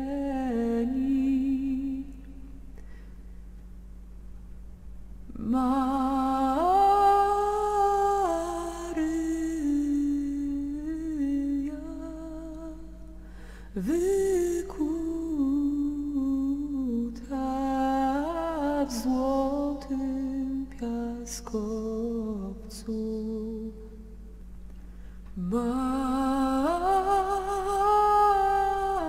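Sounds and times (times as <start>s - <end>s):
faint low hum: 0.0s - 29.0s
woman humming: 18.2s - 19.9s.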